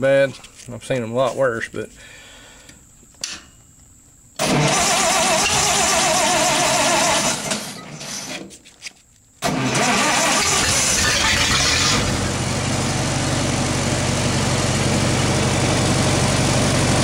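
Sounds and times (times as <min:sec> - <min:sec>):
engine cranking: 0:04.4 - 0:07.8, 0:09.4 - 0:12.2.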